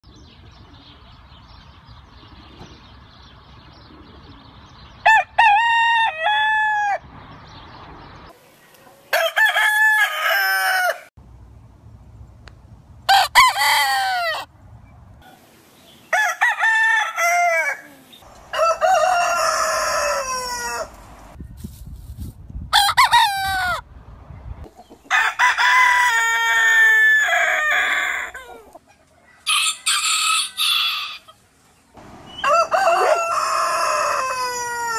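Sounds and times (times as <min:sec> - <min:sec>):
roosters crowing: 0:05.0 - 0:07.1, 0:09.1 - 0:11.1, 0:13.1 - 0:14.5, 0:16.0 - 0:21.4, 0:22.7 - 0:23.9, 0:25.0 - 0:31.4, 0:32.0 - 0:34.9.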